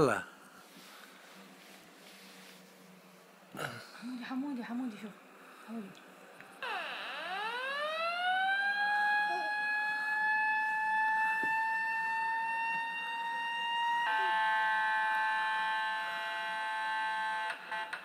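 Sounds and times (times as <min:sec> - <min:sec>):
electronic siren-like tone: 0:06.6 - 0:18.0.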